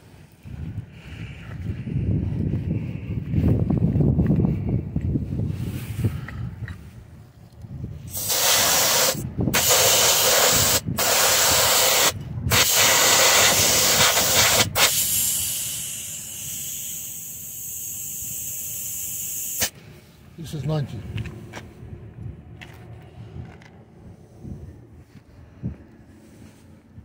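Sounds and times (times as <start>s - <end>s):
compressed air hissing into tire: 8.1s - 19.8s.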